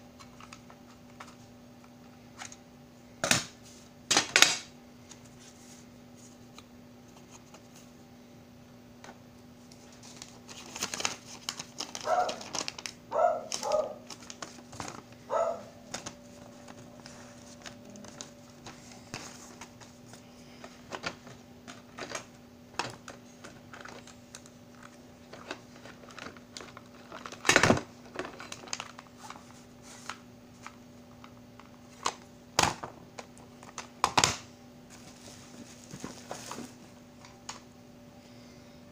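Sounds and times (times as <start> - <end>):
faint steady hum: 0.0 - 38.9
plastic wrapping crinkling: 9.7 - 32.2, 33.2 - 37.6.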